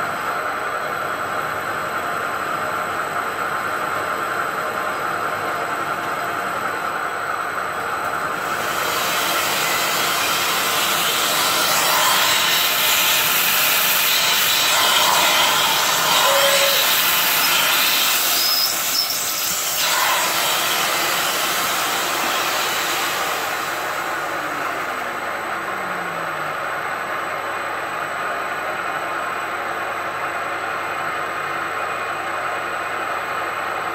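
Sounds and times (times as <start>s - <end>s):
milling machine spindle running: 8.4s - 28.2s
loud hiss: 8.5s - 25.6s
brief high squeals: 16.1s - 17.6s, 18.2s - 19.6s.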